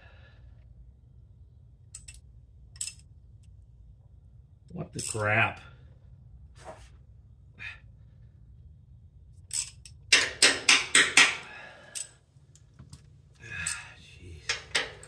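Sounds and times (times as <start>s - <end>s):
wrench clinking against metal: 2.0s - 2.2s, 9.5s - 12.2s, 13.5s - 15.0s.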